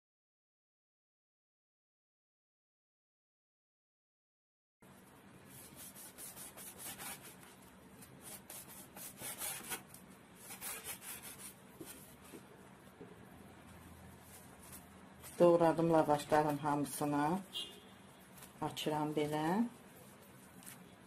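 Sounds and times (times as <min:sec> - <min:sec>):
knife slicing flatbread: 0:05.5 - 0:12.1.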